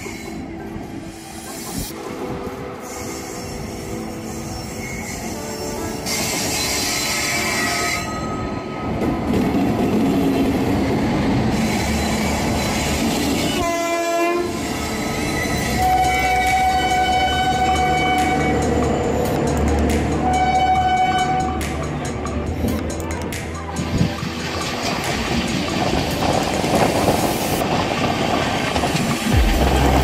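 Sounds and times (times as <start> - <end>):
train running past: 0.0 - 30.0
locomotive horn: 13.4 - 14.6, 15.8 - 18.8, 20.2 - 21.8.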